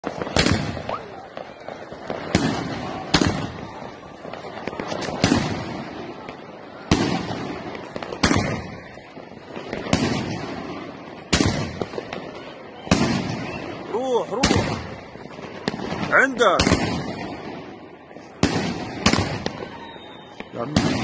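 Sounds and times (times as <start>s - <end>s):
firework shells bursting: 0.0s - 12.3s.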